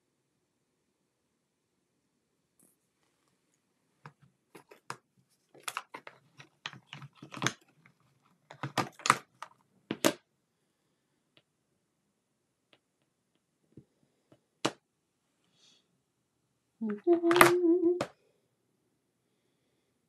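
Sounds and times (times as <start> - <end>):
plastic clicks and crinkles: 4.0 - 10.2.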